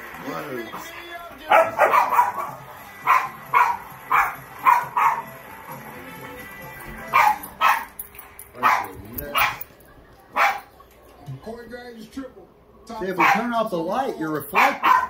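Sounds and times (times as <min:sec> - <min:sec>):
dog yipping: 0:01.5 - 0:05.3, 0:07.1 - 0:08.0, 0:08.6 - 0:09.7, 0:10.3 - 0:10.8, 0:13.2 - 0:13.5, 0:14.5 - 0:15.0.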